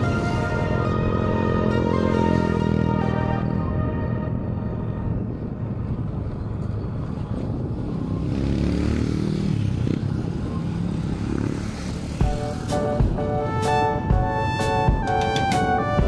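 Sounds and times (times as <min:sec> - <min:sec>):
background music: 0:00.0 - 0:06.2, 0:12.1 - 0:16.0
motorcycle engine revving: 0:07.8 - 0:12.8.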